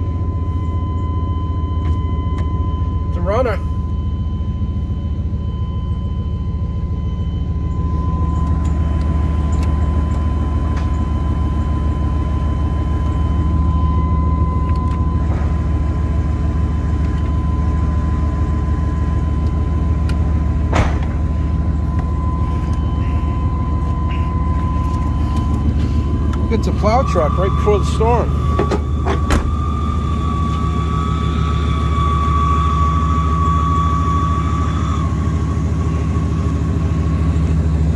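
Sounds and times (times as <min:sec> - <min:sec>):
high-pitched whine: 0:00.0 - 0:37.9
truck engine idling: 0:00.0 - 0:37.9.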